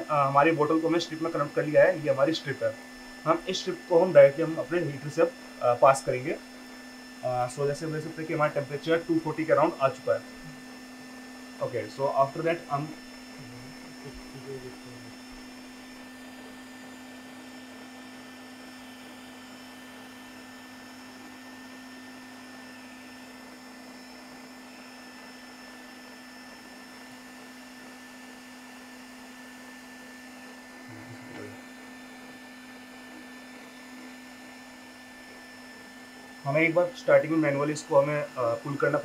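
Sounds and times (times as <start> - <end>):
faint high whines: 0.0 - 27.8
machine electrical hum: 0.0 - 39.0.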